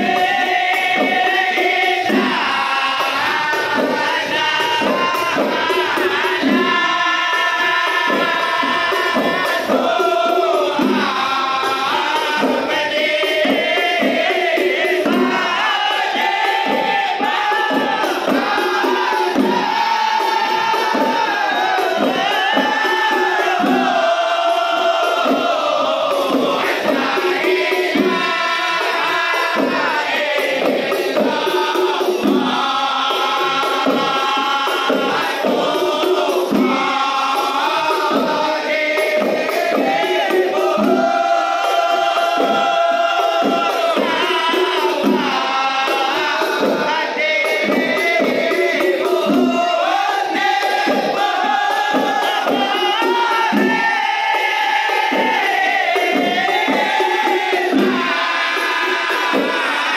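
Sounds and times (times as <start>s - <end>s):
hand-struck frame drums: 0.0s - 59.9s
men singing together: 0.0s - 59.9s.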